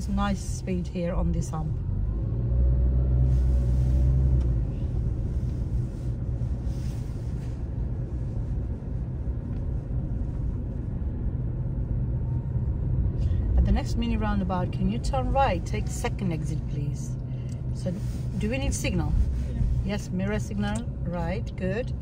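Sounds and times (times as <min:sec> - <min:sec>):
car engine and road noise: 0:00.0 - 0:22.0.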